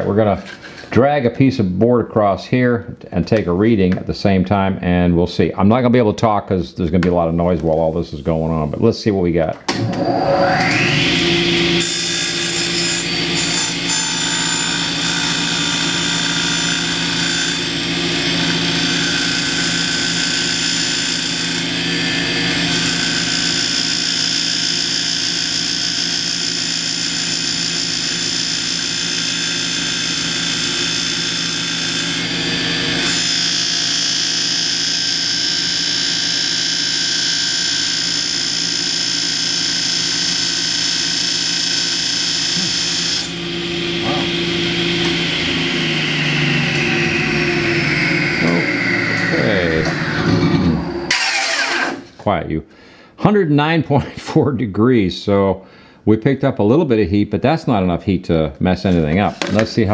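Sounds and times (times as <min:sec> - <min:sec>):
table saw whining: 0:07.7 - 0:52.2.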